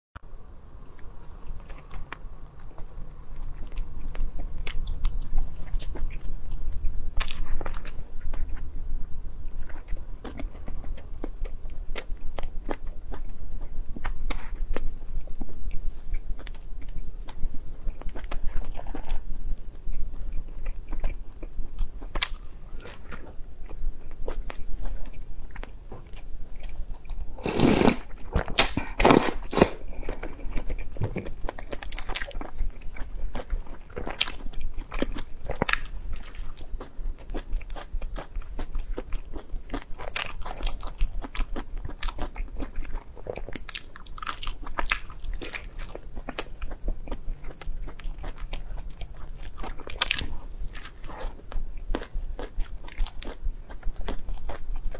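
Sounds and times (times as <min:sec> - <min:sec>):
person crunching pastry: 0:20.4 - 0:54.9.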